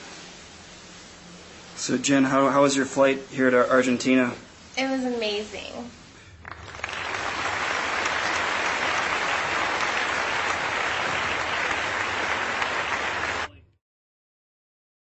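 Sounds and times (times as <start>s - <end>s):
crowd applauding: 6.4s - 13.5s.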